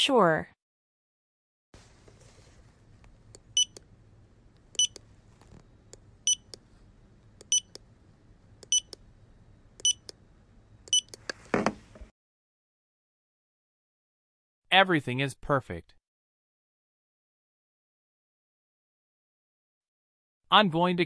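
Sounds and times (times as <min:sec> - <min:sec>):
clicks: 0:04.5 - 0:06.6, 0:07.3 - 0:07.9, 0:08.6 - 0:09.0, 0:09.8 - 0:10.2, 0:10.8 - 0:11.4
short high electronic beeps: 0:06.3 - 0:06.5.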